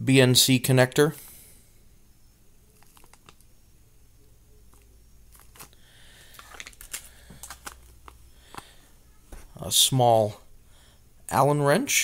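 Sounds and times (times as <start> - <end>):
plastic bags crinkling: 2.8 - 3.4, 4.7 - 8.8.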